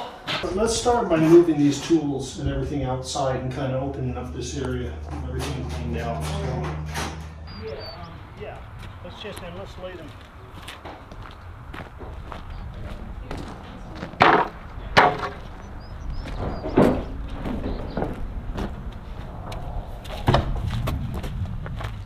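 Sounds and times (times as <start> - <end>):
steady low rumble: 0.4 - 22.0
wooden thuds and knocks: 14.1 - 15.6, 16.3 - 18.8.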